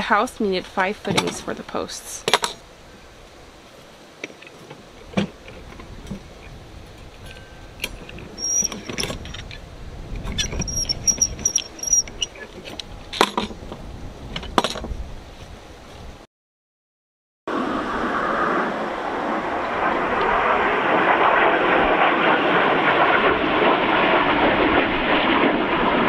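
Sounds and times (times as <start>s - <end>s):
high squeaks: 8.3s - 9.5s, 10.3s - 12.5s
rebar clinking and knocking: 10.4s - 12.4s.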